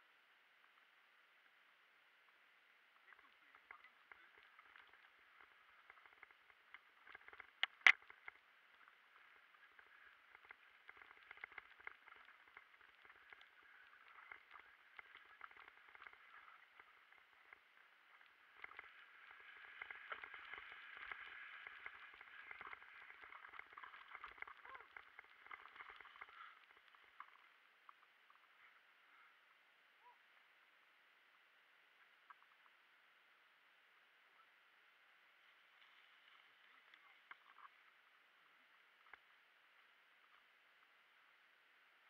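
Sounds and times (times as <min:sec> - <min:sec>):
bike tyres crackling on dirt: 0:03.0 - 0:28.7.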